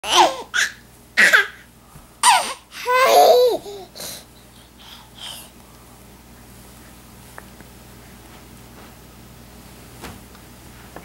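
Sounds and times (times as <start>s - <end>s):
baby babbling and laughing: 0.0s - 4.0s.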